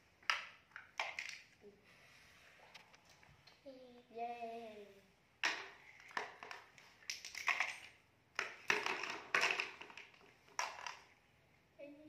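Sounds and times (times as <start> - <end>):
plastic toys clattering and scraping: 0.2 - 1.6, 5.4 - 11.2.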